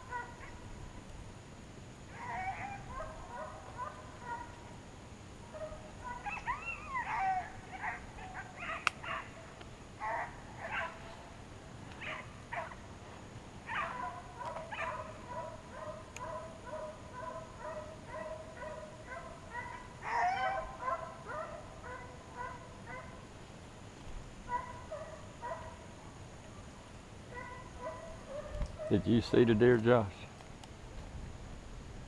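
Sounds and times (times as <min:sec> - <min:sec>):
hounds barking: 0:00.0 - 0:00.7, 0:02.1 - 0:04.7, 0:05.5 - 0:11.2, 0:12.0 - 0:12.9, 0:13.6 - 0:23.2, 0:24.5 - 0:25.9, 0:27.3 - 0:29.6.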